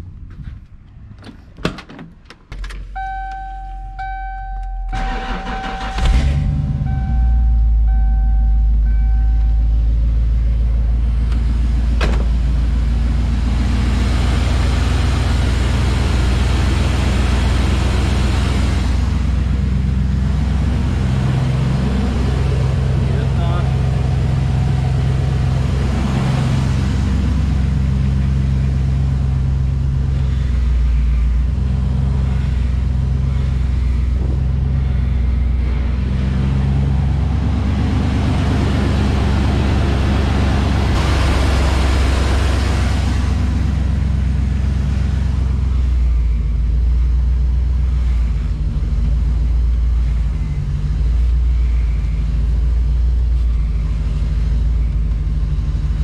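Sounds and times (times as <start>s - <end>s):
truck engine idling: 0.0s - 56.0s.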